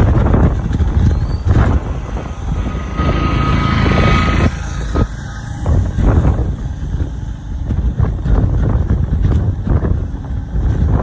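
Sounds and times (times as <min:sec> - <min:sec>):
traffic engine and tyre rumble: 0:00.0 - 0:11.0
thin steady whine: 0:00.9 - 0:06.5.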